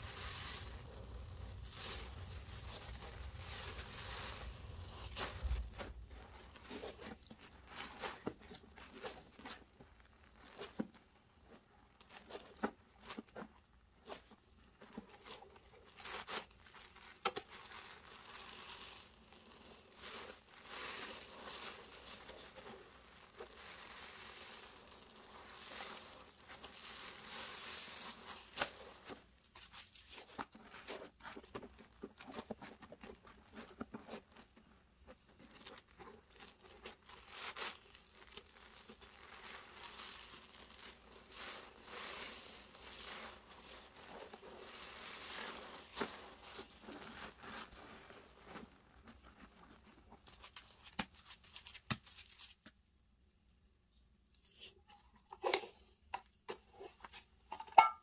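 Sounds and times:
sponge squelching in suds: 0:00.0 - 0:52.5.

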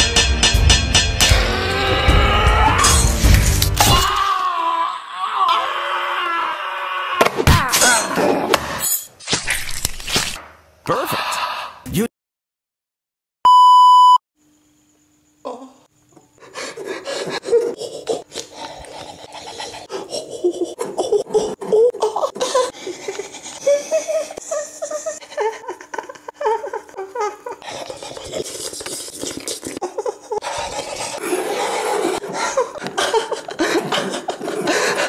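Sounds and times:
person laughing: 0:16.6 - 0:18.5, 0:19.5 - 0:28.1, 0:29.6 - 0:35.0
scratchy rubbing noises: 0:27.6 - 0:29.8.

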